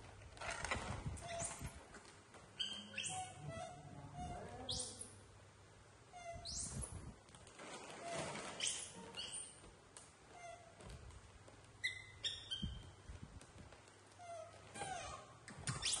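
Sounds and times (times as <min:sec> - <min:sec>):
baby monkeys squeaking: 0:01.2 - 0:01.7, 0:02.6 - 0:05.2, 0:06.1 - 0:07.1, 0:08.0 - 0:09.6, 0:11.8 - 0:13.0, 0:14.2 - 0:16.0.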